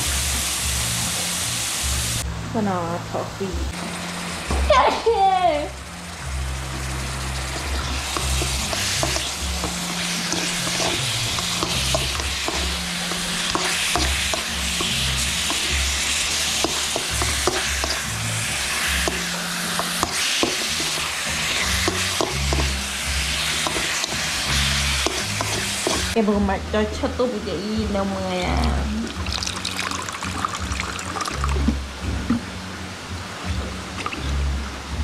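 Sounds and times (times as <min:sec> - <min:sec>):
meat sizzling in a wok: 0:00.0 - 0:02.2, 0:03.8 - 0:26.2, 0:27.9 - 0:32.7
metal utensil scraping a pan: 0:06.6 - 0:26.2.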